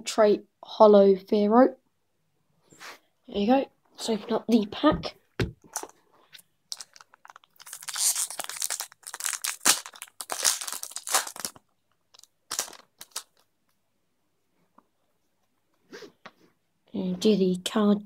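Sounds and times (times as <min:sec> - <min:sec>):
foil wrapper tearing and crinkling: 0:06.7 - 0:13.4.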